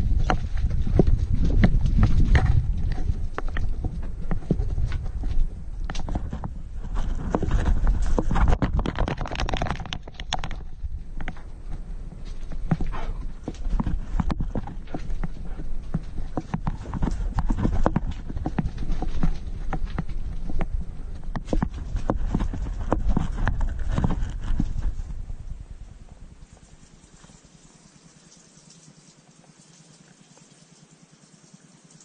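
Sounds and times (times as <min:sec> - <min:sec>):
clatter on rocky floor: 0:00.0 - 0:25.3
low rumble of handling noise: 0:00.0 - 0:27.9.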